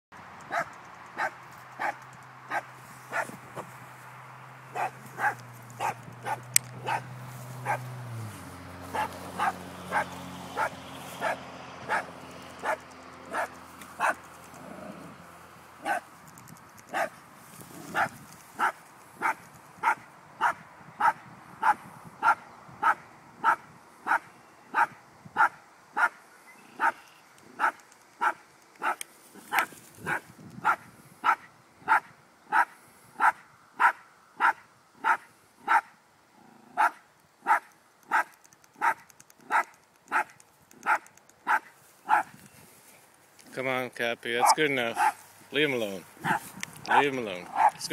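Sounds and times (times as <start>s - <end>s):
small dog barking: 0.5s - 3.4s, 4.7s - 7.9s, 8.9s - 14.2s, 15.8s - 16.0s, 16.9s - 17.2s, 17.9s - 26.2s, 26.8s - 27.0s, 27.6s - 35.9s, 36.7s - 42.4s, 44.4s - 45.2s, 46.2s - 47.8s.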